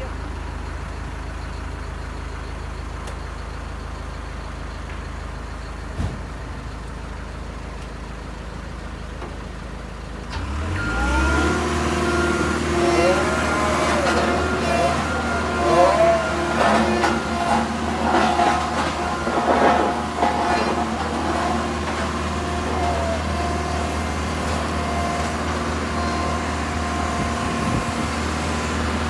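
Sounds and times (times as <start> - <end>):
diesel engine idling and revving: 0.0 - 29.0
whining tones: 10.4 - 29.0.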